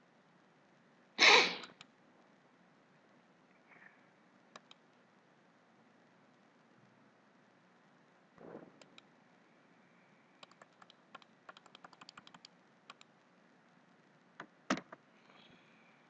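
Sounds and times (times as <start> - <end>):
keyboard and mouse clicks: 1.6 - 1.9, 4.5 - 4.8, 8.8 - 9.1, 10.4 - 13.1, 14.4 - 15.0.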